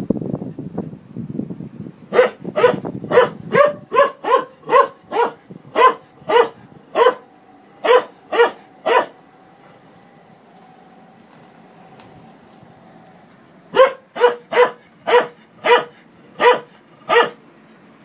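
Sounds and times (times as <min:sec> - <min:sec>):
washing machine running: 0:02.0 - 0:17.4
dog barking: 0:02.1 - 0:09.2, 0:13.7 - 0:17.4.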